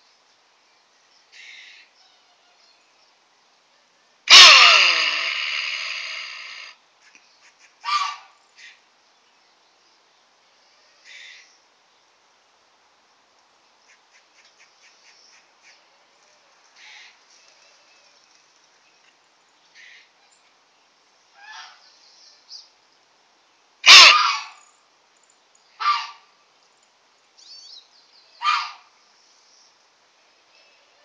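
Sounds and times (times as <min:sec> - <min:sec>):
capybara gruff barks: 0:04.3 - 0:06.7, 0:07.8 - 0:08.3, 0:23.8 - 0:24.6, 0:25.8 - 0:26.2, 0:28.4 - 0:28.9.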